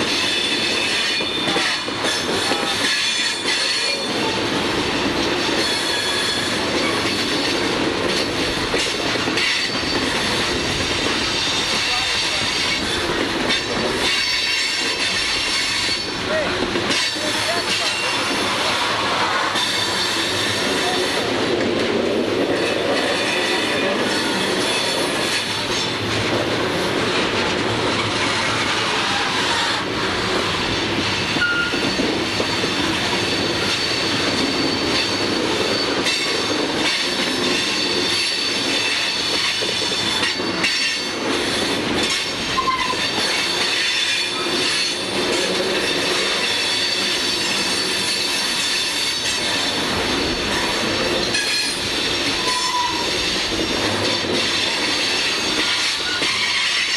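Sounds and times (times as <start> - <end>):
train wheels rumbling on rail: 0.0 - 56.9
high wheel squeal: 5.6 - 7.0, 19.5 - 21.2, 31.4 - 37.0, 42.5 - 45.1, 45.8 - 49.9, 51.3 - 53.5, 54.5 - 56.9.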